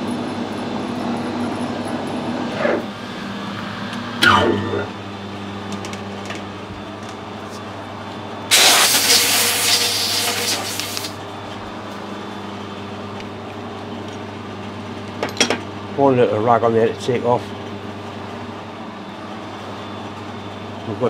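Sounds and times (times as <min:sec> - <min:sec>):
air blow gun hissing: 0:08.5 - 0:11.2.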